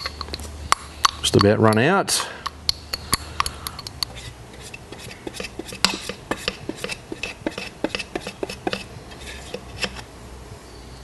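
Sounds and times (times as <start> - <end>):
utensil scraping inside a tin: 3.4 - 10.0.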